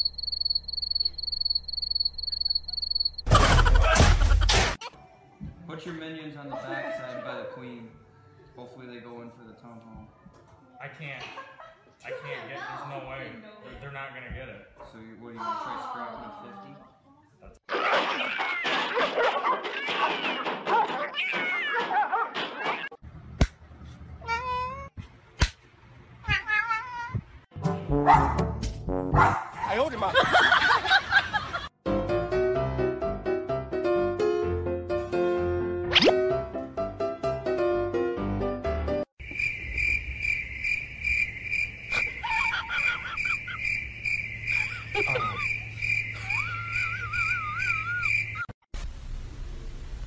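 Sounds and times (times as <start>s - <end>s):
steady high chirping: 0.0s - 3.3s, 39.2s - 48.5s
cat meowing: 21.0s - 21.8s, 26.2s - 27.3s
piano music: 31.9s - 39.0s.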